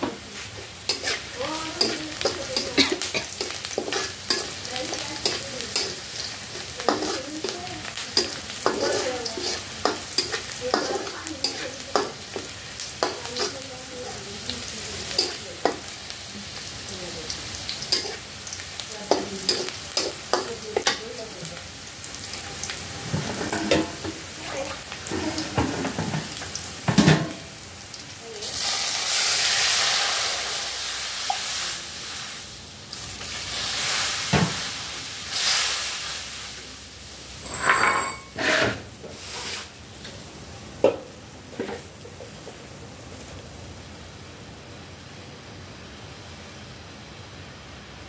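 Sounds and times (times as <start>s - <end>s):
steady simmer: 0.0s - 48.0s
vegetables sizzling: 0.0s - 48.0s
liquid hissing in hot wok: 0.2s - 22.1s, 23.1s - 37.6s, 38.3s - 40.6s
metal spatula scraping a wok: 0.9s - 2.8s, 3.4s - 13.6s, 17.9s - 18.3s, 37.4s - 39.7s.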